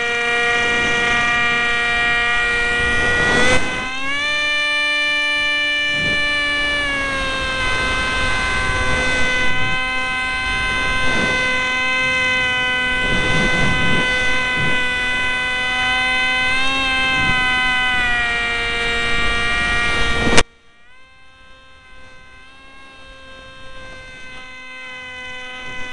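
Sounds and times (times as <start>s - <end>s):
plane smacking the ground: 0.0s - 20.6s
electric motor whine: 0.0s - 25.9s
wind rush: 5.9s - 20.4s.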